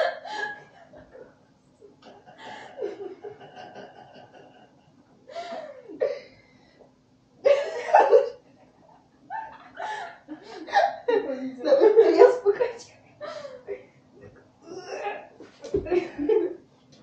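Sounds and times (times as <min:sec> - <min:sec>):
girls laughing: 0:00.0 - 0:01.3, 0:02.0 - 0:06.0, 0:07.4 - 0:08.4, 0:09.3 - 0:12.5, 0:14.9 - 0:16.6.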